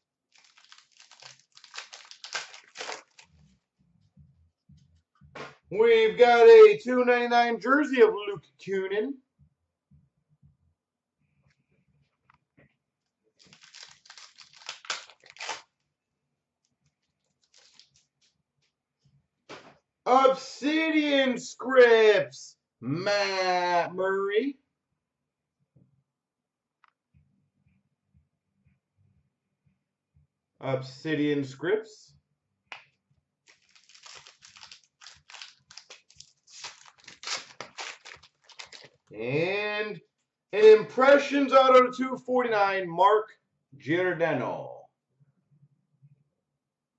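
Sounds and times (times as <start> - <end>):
packaging crinkling: 0.3 - 3.4, 13.4 - 15.7, 17.2 - 18.0, 33.5 - 39.1.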